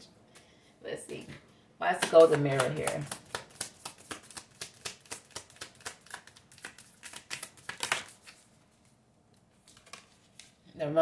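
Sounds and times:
cards being shuffled: 2.0s - 8.9s, 9.6s - 10.6s.

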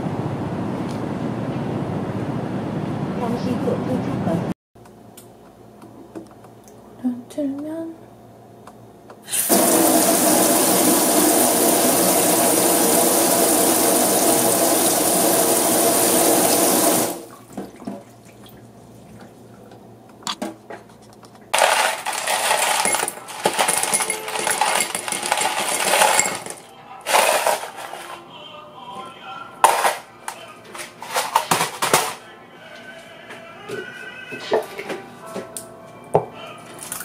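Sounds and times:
tap water running into sink: 9.4s - 18.6s
ice cubes clinking into glass: 21.6s - 27.8s
clattering: 21.6s - 28.1s.

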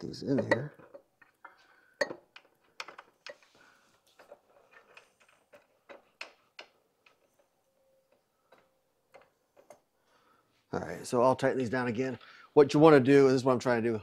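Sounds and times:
hand tools clicking and tapping: 0.2s - 9.9s.

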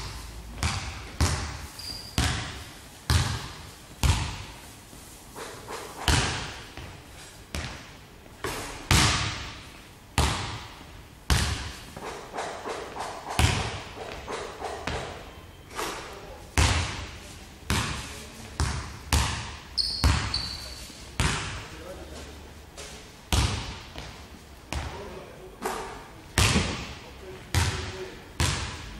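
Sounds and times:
basketball bouncing on wooden floor: 0.5s - 4.5s, 6.0s - 9.6s, 10.2s - 15.3s, 16.6s - 17.1s, 18.6s - 20.6s, 21.2s - 21.6s, 23.3s - 25.0s, 26.4s - 27.0s, 27.6s - 28.9s.

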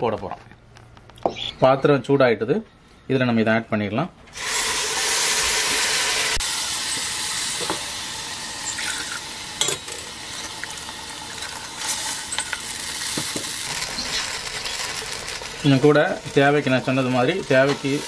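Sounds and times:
paste sizzling in a hot pot: 4.4s - 18.0s.

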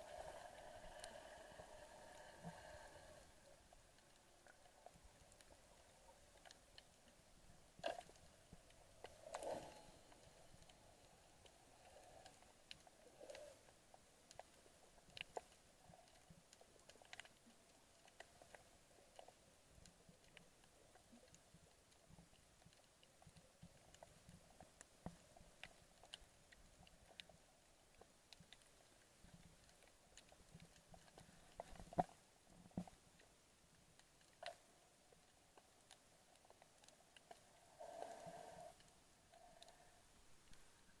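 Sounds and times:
small underwater clicks and crackles: 0.0s - 41.0s.

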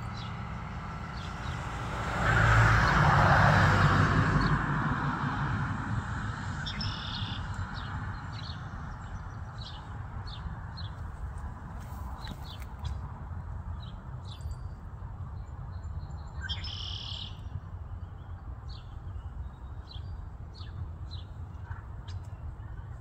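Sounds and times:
vehicle passing: 0.0s - 9.1s
high bird chirps: 6.6s - 7.5s, 16.4s - 17.5s.

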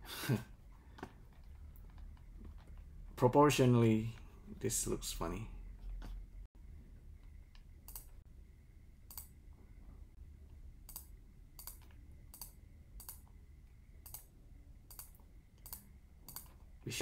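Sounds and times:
faint steady hum: 0.0s - 17.0s
mouse and keyboard clicks: 14.9s - 16.6s.

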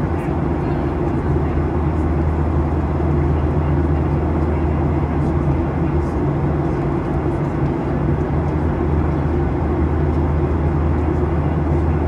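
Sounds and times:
airliner cabin engine drone: 0.0s - 12.0s.

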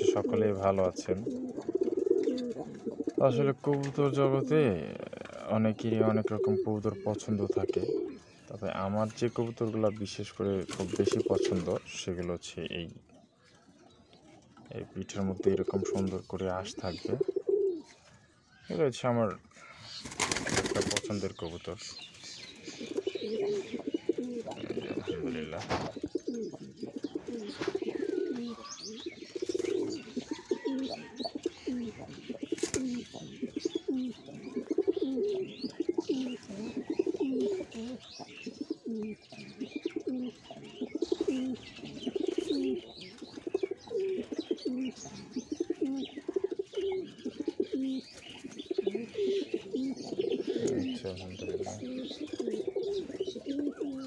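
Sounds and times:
pigeons cooing: 0.0s - 54.0s.

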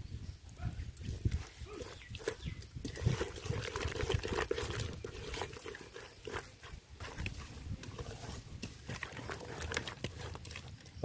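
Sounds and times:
hand kneading wet paste: 0.9s - 11.0s.

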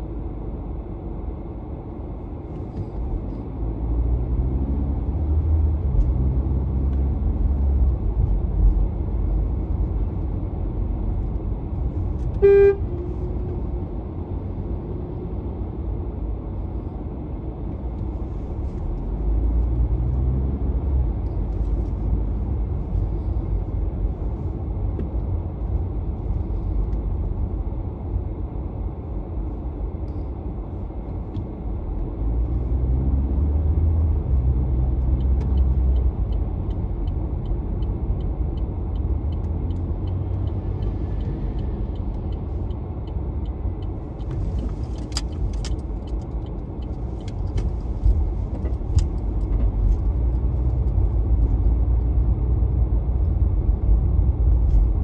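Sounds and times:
car driving rumble: 0.0s - 55.0s
car horn toot: 12.3s - 13.1s.

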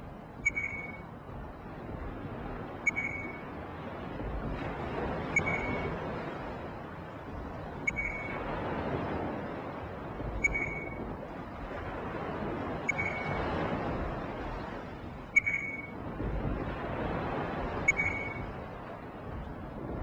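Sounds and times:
sea noise: 0.0s - 20.0s
wind: 0.0s - 20.0s
short high beep: 0.4s - 1.0s, 2.9s - 3.4s, 5.4s - 5.9s, 7.9s - 8.4s, 10.4s - 11.0s, 12.9s - 13.4s, 15.4s - 16.0s, 17.9s - 18.4s.

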